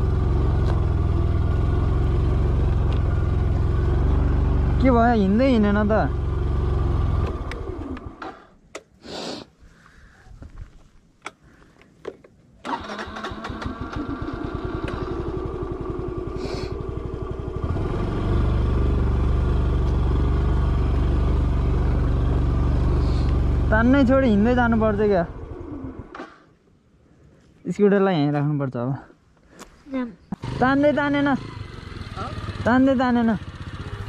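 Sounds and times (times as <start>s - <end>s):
scooter engine: 0.0s - 8.5s, 12.7s - 26.3s, 30.3s - 34.0s.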